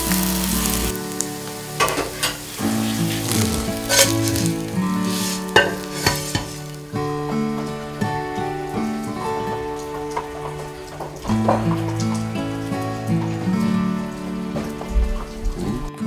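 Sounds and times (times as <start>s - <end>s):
food sizzling in hot oil: 0.0s - 10.5s.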